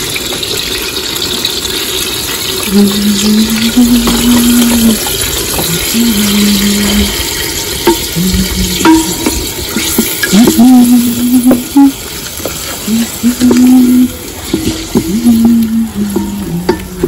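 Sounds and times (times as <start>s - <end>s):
wooden spoon stirring sauce: 3.4s - 17.0s
spoon knocking against pot: 6.8s - 11.8s, 14.4s - 17.0s.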